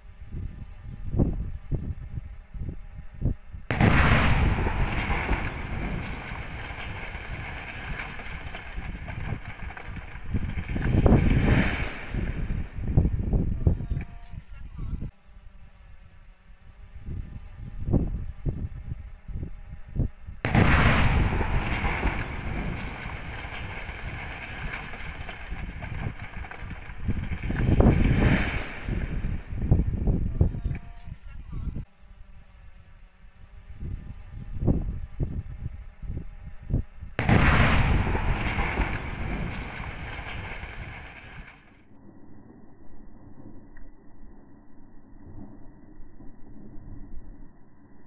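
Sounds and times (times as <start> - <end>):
chimney collapsing rumble: 3.7 - 13.5, 20.5 - 30.3, 37.2 - 41.8
explosive blast: 3.7 - 13.5, 20.4 - 30.3, 37.2 - 41.7
demolition charge boom: 3.7 - 13.8, 20.4 - 30.4, 37.2 - 41.7
long rumble: 20.4 - 30.9.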